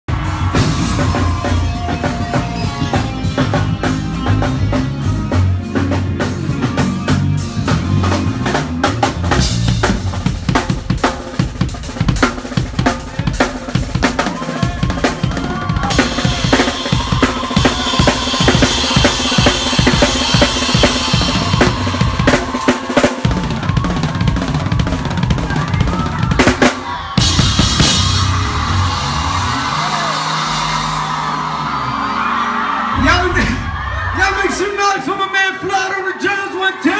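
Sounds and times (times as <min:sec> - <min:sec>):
drum kit fills: 0:00.0 - 0:35.6
cymbals crashing: 0:15.8 - 0:23.5.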